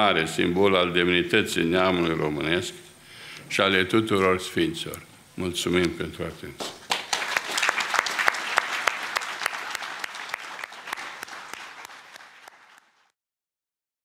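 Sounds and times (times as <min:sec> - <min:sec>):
audience applauding: 0:06.6 - 0:13.1.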